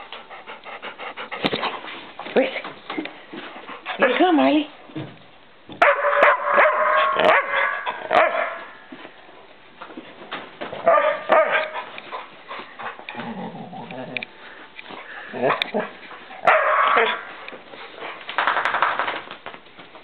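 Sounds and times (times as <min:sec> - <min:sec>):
dogs barking and whining: 0:05.8 - 0:08.9, 0:10.8 - 0:14.3, 0:15.0 - 0:18.2.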